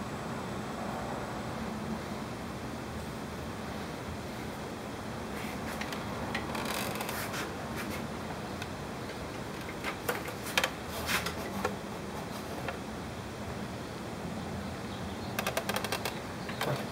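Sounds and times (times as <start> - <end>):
light rubbing handling noise: 5.3 - 8.1, 9.0 - 12.8.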